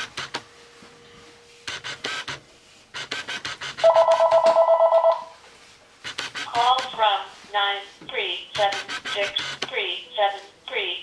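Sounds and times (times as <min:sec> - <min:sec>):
grooming tool scratching fur: 0:06.0 - 0:07.3, 0:08.6 - 0:09.6.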